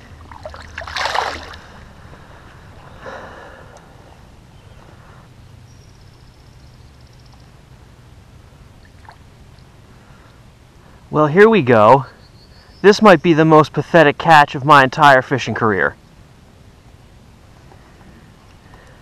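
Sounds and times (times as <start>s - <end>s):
low outdoor background: 0.0s - 19.0s
water splash: 0.2s - 1.8s.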